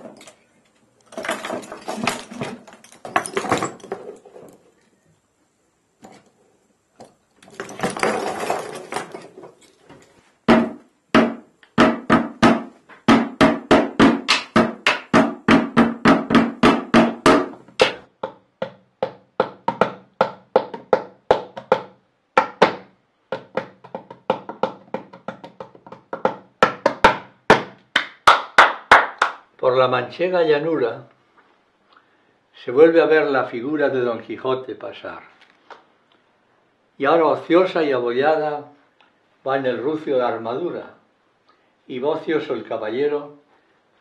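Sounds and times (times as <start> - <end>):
hollow ringing percussive knocks: 10.5 - 27.7.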